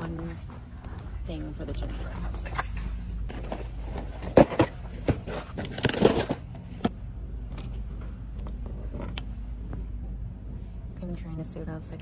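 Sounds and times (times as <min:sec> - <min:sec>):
steady low hum: 0:00.0 - 0:12.0
cardboard boxes clunking and rustling: 0:03.3 - 0:07.0.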